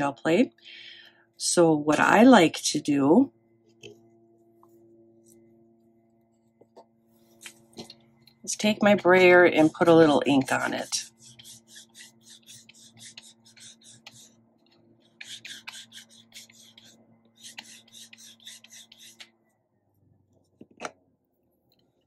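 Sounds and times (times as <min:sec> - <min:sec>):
ink pad scratching on roller: 0:08.6 - 0:14.4, 0:15.1 - 0:19.2.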